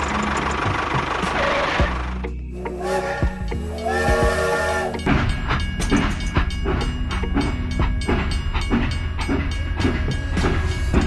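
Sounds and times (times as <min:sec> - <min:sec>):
train whistle: 0:02.6 - 0:05.0.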